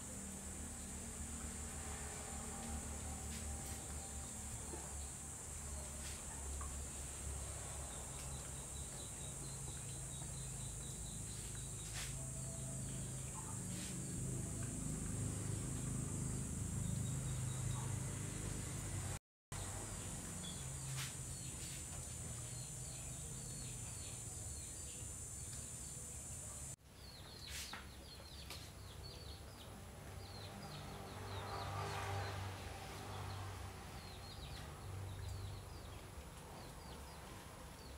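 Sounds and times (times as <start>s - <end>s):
high insect drone: 0.0s - 26.8s.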